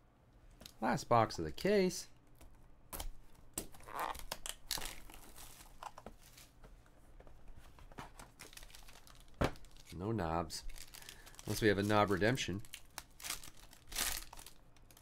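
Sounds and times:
paper and foil rustling: 4.7 - 6.6, 8.2 - 10.0, 10.6 - 15.0.

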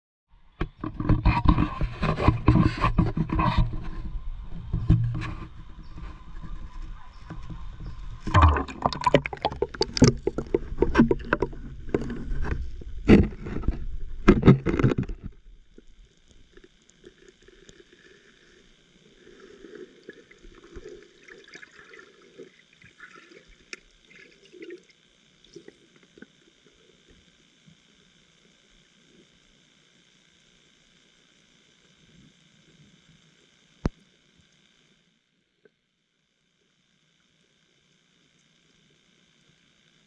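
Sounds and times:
water splashing against camera: 0.6 - 24.8
muffled underwater bubbling: 0.8 - 27.1.

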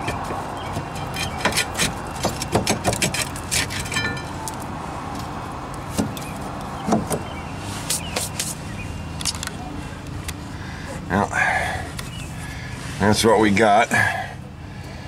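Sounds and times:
metal clinks and rattles: 3.1 - 4.4.

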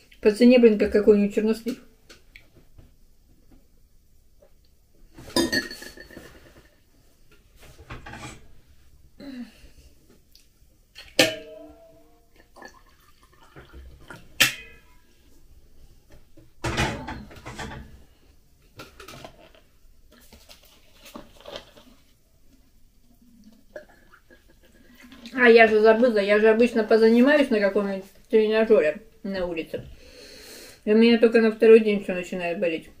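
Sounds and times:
metal kettle clanking: 11.2 - 11.8, 13.5 - 15.0, 16.6 - 18.0
water pouring into a mug: 12.3 - 14.3.

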